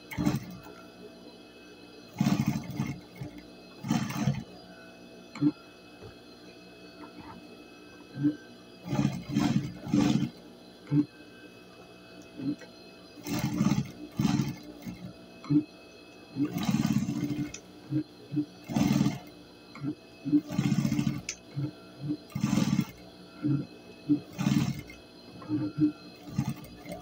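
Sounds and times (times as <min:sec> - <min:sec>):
sewing machine stitching: 0:00.0 - 0:00.7, 0:02.1 - 0:04.4, 0:08.8 - 0:10.4, 0:13.2 - 0:15.6, 0:16.4 - 0:17.6, 0:18.6 - 0:21.6, 0:22.2 - 0:23.0, 0:24.1 - 0:27.0.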